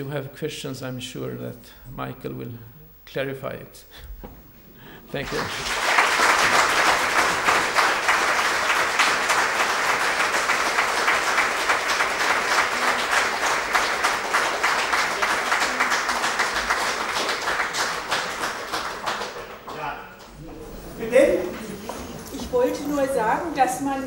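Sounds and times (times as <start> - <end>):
audience applauding: 5.2 - 24.0.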